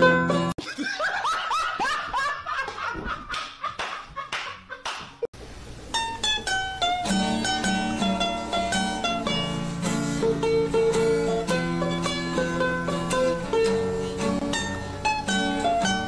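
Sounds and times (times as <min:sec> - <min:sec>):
plucked-string background music: 0:00.0 - 0:00.5, 0:05.9 - 0:16.0
man laughing hard: 0:00.6 - 0:05.0.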